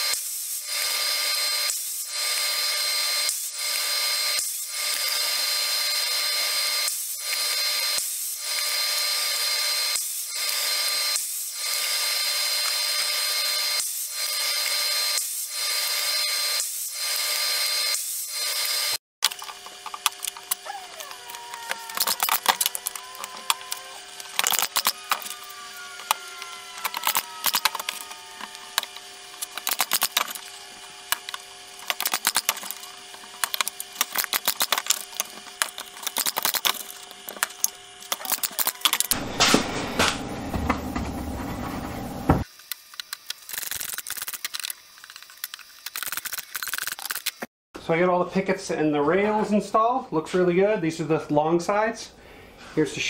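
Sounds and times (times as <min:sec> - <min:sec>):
steady hum: 0:19.2 - 0:42.4
nail gun firing: 0:24.2 - 0:25.3, 0:28.7 - 0:30.4, 0:31.1 - 0:37.5, 0:38.1 - 0:40.2.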